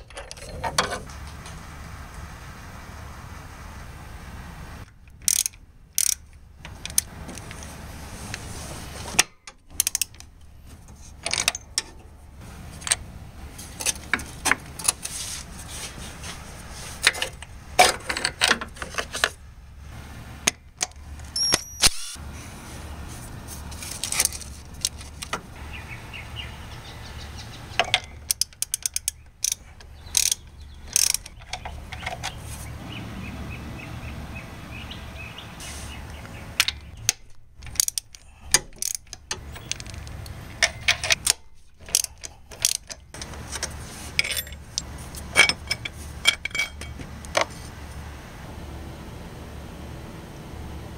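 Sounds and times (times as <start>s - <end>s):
socket ratchet clicking: 5.1s - 7.1s, 9.7s - 10.3s, 28.0s - 32.4s, 36.7s - 43.3s.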